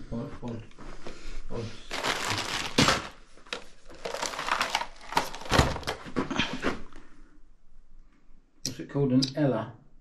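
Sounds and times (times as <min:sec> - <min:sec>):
papers rustling and crinkling: 0:01.8 - 0:06.9.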